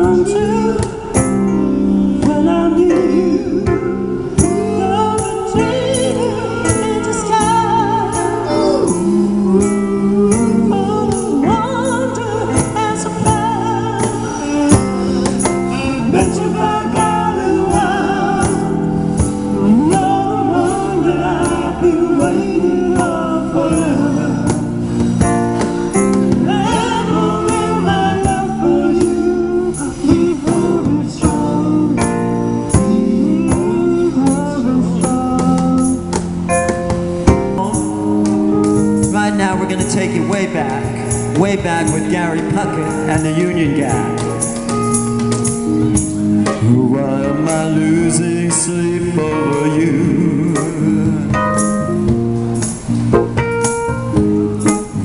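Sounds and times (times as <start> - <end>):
woman singing into microphone: 0.0 - 19.0, 19.6 - 24.8, 26.1 - 36.2
acoustic guitar: 0.0 - 55.0.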